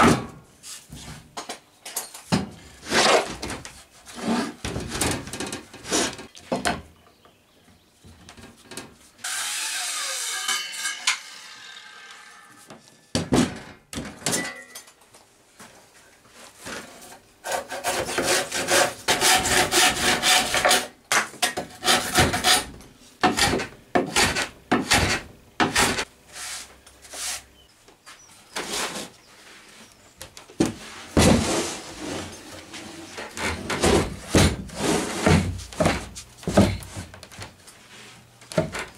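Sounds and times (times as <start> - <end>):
handsaw cutting wood: 9.2 - 12.4, 17.4 - 20.9, 21.8 - 22.7
timber knocking and scraping: 30.6 - 37.6.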